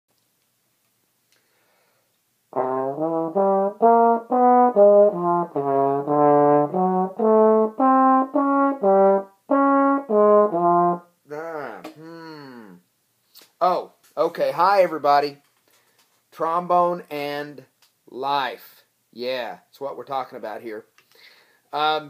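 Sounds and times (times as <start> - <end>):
trombone playing melody: 2.5 - 11.1.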